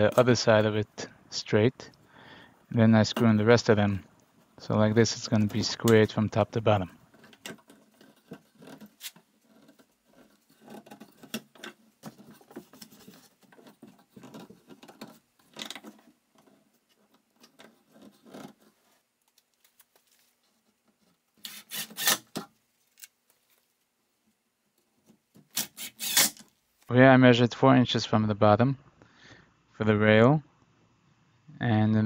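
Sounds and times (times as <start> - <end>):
wood panels clicking and rubbing: 7.0 - 18.9
impact driver driving screws: 21.4 - 22.4, 25.5 - 26.4.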